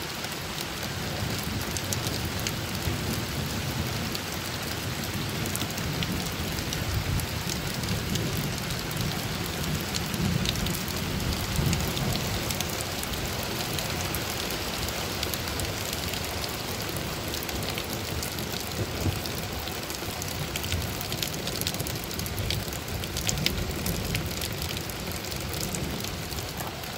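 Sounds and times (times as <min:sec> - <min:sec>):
steady rain falling: 0:00.0 - 0:26.9
sharp raindrop ticks: 0:00.1 - 0:26.9.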